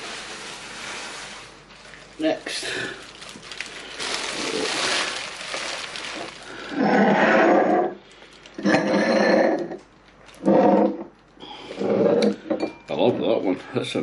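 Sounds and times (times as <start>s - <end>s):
bubble wrap crinkling: 0.0s - 8.6s.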